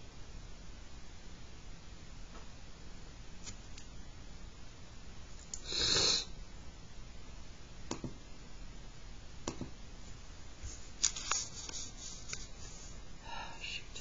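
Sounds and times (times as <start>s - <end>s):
sharp breath-like hiss: 5.6s - 6.3s.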